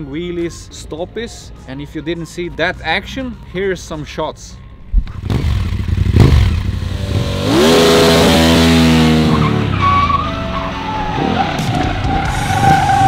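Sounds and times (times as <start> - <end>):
motorcycle engine revving: 5.0 - 13.0
tyre squealing: 9.0 - 13.0.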